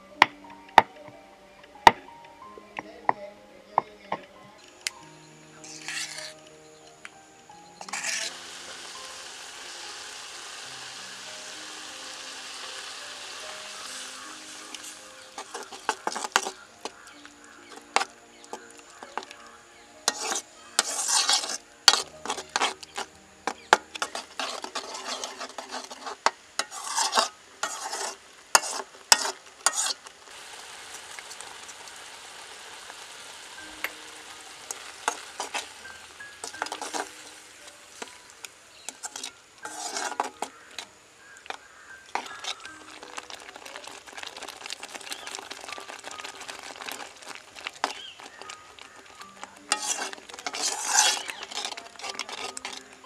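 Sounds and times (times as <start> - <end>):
sauce sizzling: 4.6 - 53.0
metal spoon scraping pot: 5.6 - 6.4, 7.8 - 9.1, 13.7 - 19.3, 20.0 - 30.1, 34.7 - 53.0.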